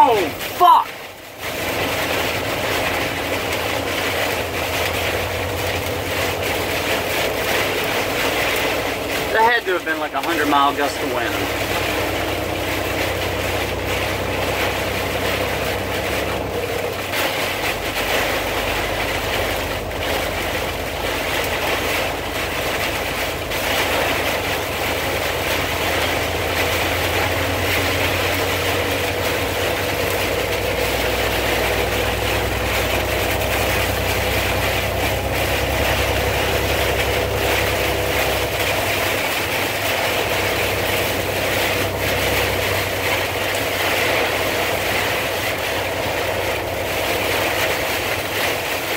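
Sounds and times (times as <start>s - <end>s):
engine and road noise: 0.0s - 48.9s
wind and rain on car: 0.0s - 48.9s.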